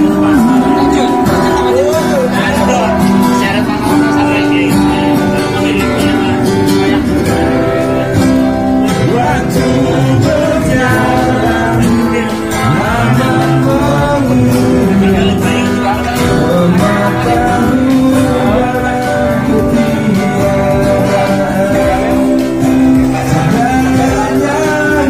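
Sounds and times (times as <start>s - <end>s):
acoustic guitar strumming: 0.0s - 25.0s
man singing through loudspeaker: 0.0s - 25.0s.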